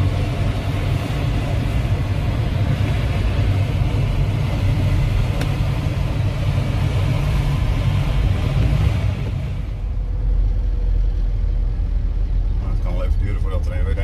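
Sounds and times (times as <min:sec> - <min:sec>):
airflow rush in glider cockpit: 0:00.0 - 0:14.0
car driving rumble: 0:00.0 - 0:14.0.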